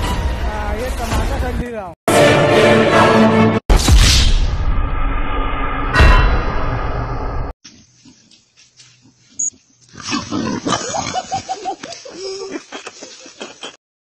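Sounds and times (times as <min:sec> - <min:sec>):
music: 0:00.0 - 0:03.6.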